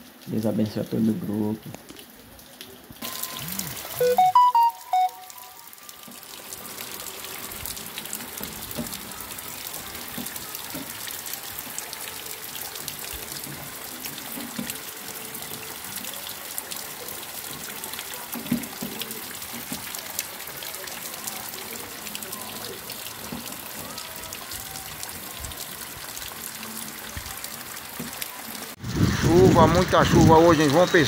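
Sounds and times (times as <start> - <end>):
rain drops splashing: 0.0 - 31.0
heavy rain hissing: 3.0 - 4.2, 28.7 - 31.0.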